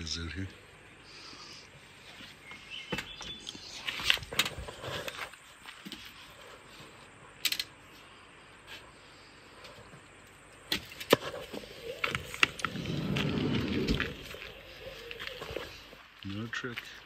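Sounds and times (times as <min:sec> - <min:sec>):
door rumbling: 0:12.2 - 0:14.5.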